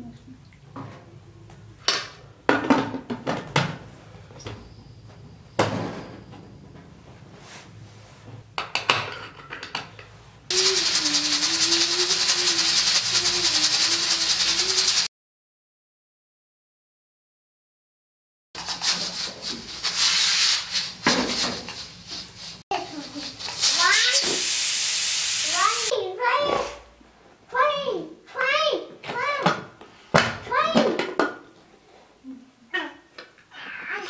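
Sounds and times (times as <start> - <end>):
pressure cooker steam hiss: 10.5 - 15.1, 18.6 - 25.9.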